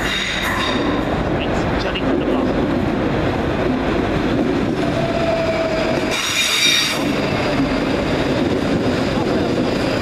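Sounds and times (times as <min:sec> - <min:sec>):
wheels squealing on rails: 0:00.0 - 0:01.2, 0:04.8 - 0:08.4
electric train passing: 0:00.0 - 0:10.0.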